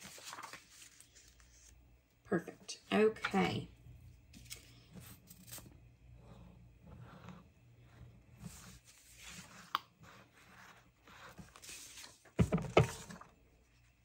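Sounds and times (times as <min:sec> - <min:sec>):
paper rustling and scraping: 0:00.0 - 0:01.8, 0:04.3 - 0:05.7, 0:08.4 - 0:13.2.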